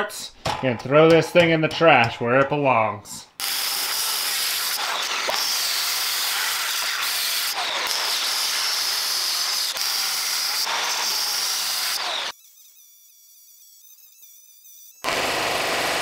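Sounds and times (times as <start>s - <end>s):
power saw cutting metal: 3.4s - 14.1s, 15.0s - 16.0s.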